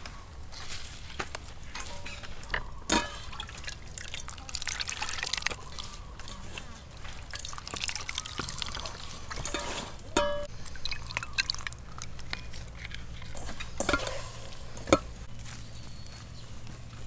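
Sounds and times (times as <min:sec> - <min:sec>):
liquid dripping and sloshing: 0:01.8 - 0:09.8, 0:10.4 - 0:15.0.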